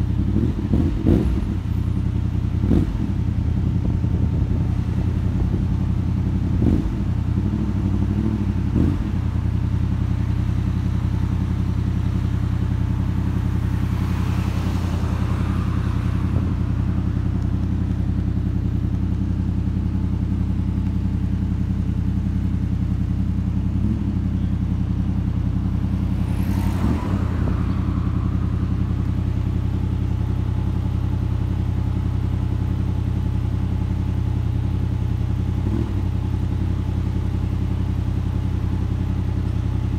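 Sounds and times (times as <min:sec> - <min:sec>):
passing vehicle noise: 0:00.0 - 0:20.7, 0:23.5 - 0:33.2
motorcycle engine running: 0:00.0 - 0:39.9.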